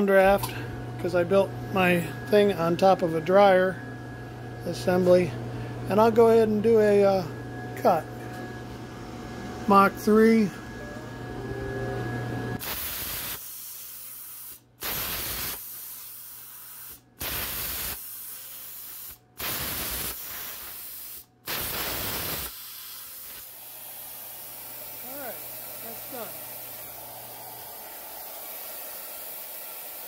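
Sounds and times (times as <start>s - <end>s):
plasma cutter hissing: 12.6s - 27.0s, 27.6s - 30.0s.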